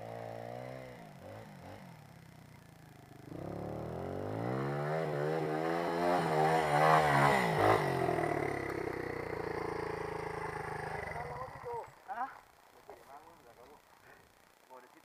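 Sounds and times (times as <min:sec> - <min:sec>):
dirt bike engine revving: 0:00.0 - 0:11.9.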